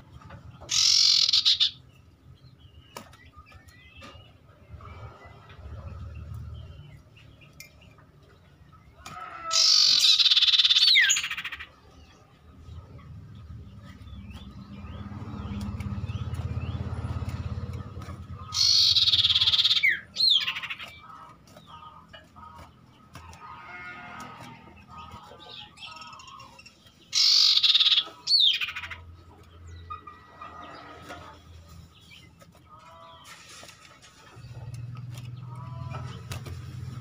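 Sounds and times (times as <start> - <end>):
bird harsh rattling churr: 0.7 - 1.8, 9.5 - 11.7, 18.4 - 21.0, 27.1 - 29.1.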